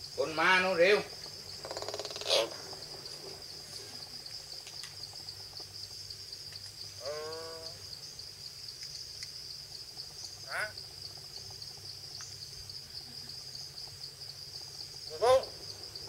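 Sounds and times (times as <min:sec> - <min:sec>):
insects droning: 0:00.0 - 0:16.0
myna bird calling: 0:01.6 - 0:02.9, 0:15.1 - 0:15.6.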